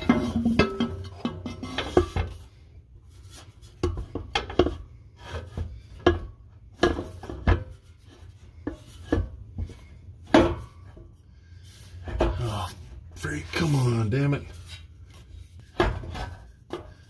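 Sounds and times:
metal knocks and clunks: 0:00.0 - 0:02.4, 0:03.7 - 0:11.1, 0:15.6 - 0:17.0.

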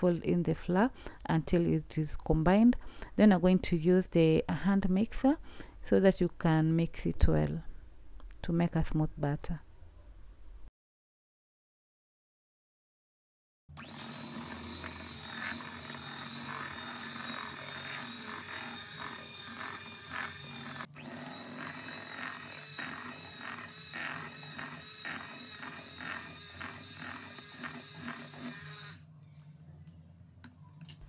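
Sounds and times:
electric hand mixer whine: 0:13.7 - 0:29.0.

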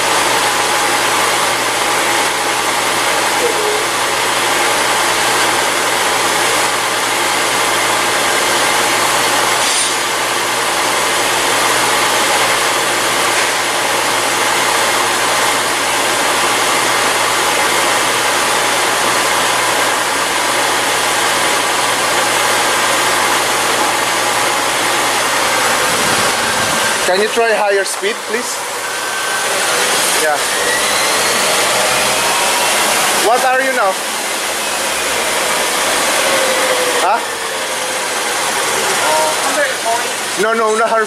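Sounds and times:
car drivetrain drone: 0:00.0 - 0:40.4
workshop noise: 0:00.0 - 0:41.0.

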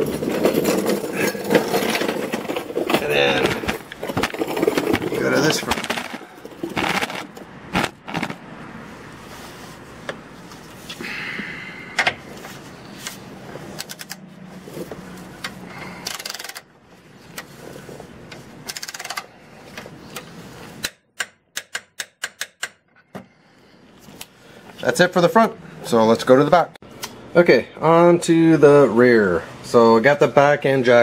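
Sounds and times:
metallic clicks and knocks: 0:20.8 - 0:23.1.

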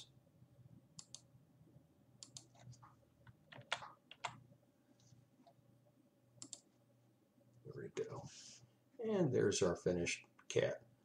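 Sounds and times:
mouse clicks: 0:01.0 - 0:01.3, 0:02.2 - 0:02.7, 0:06.4 - 0:06.7.

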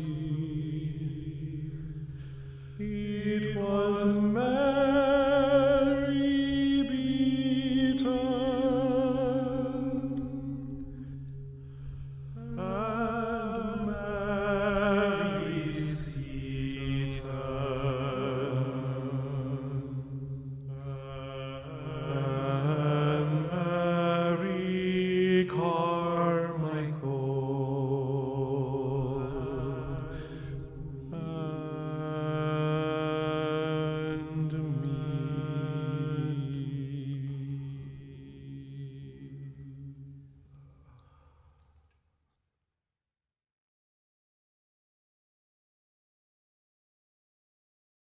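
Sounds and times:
person chanting: 0:00.0 - 0:11.3, 0:12.3 - 0:41.3.

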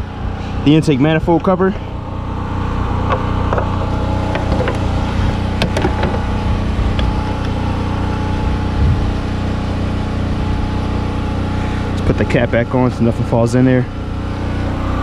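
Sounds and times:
engine idling hum: 0:00.0 - 0:15.0
parts clicking and knocking: 0:03.0 - 0:05.0, 0:05.6 - 0:06.3.

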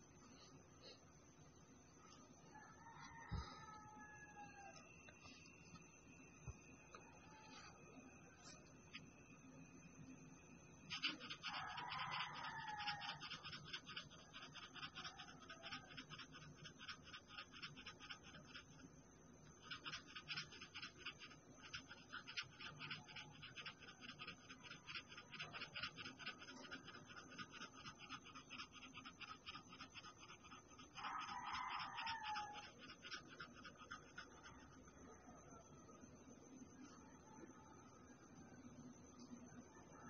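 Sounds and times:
paintbrush scratching on canvas: 0:10.9 - 0:18.8, 0:19.6 - 0:34.8.

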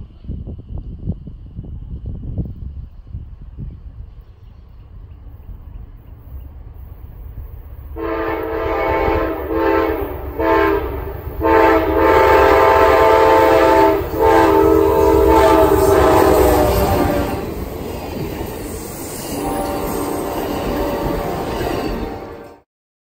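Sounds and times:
train wheels rumbling on rails: 0:00.0 - 0:22.6
locomotive air horn blasts: 0:08.0 - 0:17.6, 0:19.2 - 0:22.6.

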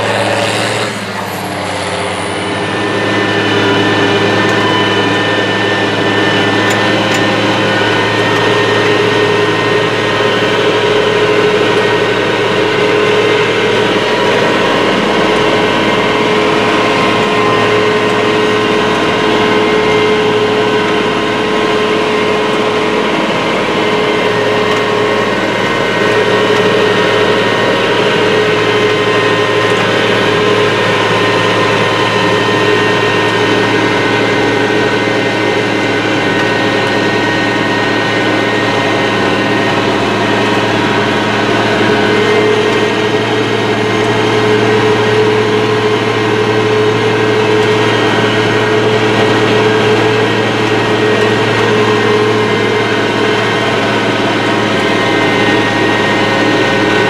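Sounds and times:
tractor diesel engine drone: 0:00.0 - 0:57.0.

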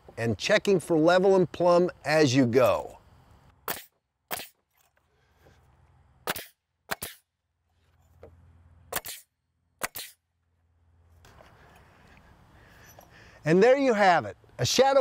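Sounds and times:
nail gun shots into wood: 0:03.6 - 0:04.6, 0:06.2 - 0:07.3, 0:08.9 - 0:10.2.

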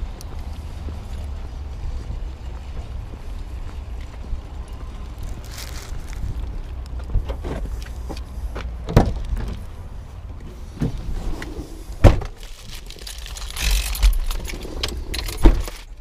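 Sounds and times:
wind rumble on microphone: 0:00.0 - 0:08.0
car door and seat thumps: 0:12.0 - 0:12.4
paper wrapper crinkling: 0:12.4 - 0:14.4.

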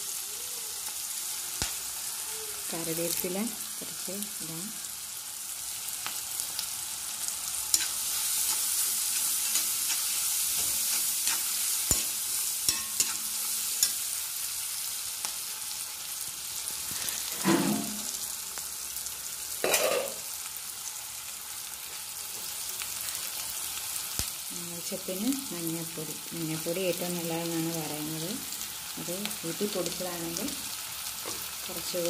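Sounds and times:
vegetables sizzling in hot oil: 0:00.0 - 0:32.0
metal spatula scraping pan: 0:07.7 - 0:14.0.

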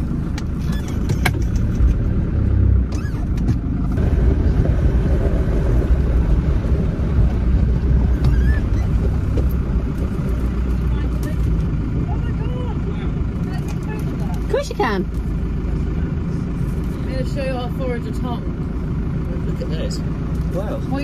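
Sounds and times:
engine and road rumble: 0:00.0 - 0:21.0
light rattles: 0:00.3 - 0:02.1.

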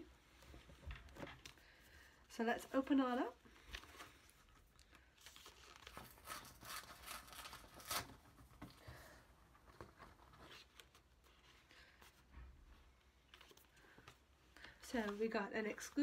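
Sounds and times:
stiff paper crinkling: 0:03.6 - 0:08.7.

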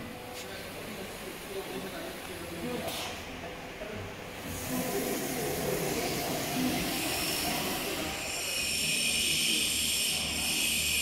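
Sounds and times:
router machine hissing: 0:04.6 - 0:11.0.

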